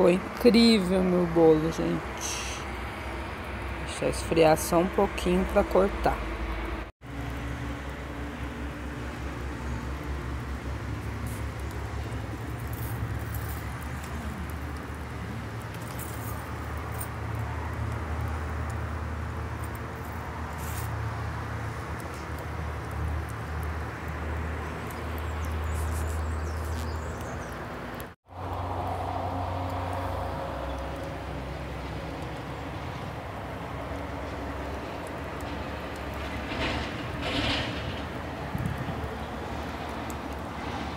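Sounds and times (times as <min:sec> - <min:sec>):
firewood crackling: 0:00.0 - 0:40.9
wind buffeting microphone: 0:36.1 - 0:40.9.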